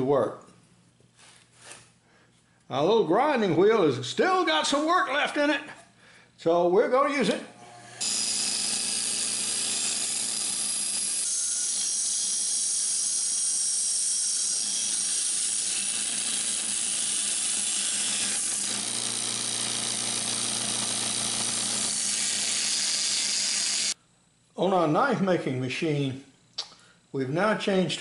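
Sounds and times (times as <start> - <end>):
bench grinder motor hum: 7.6 - 24.0
wood grinding hiss: 8.0 - 24.0.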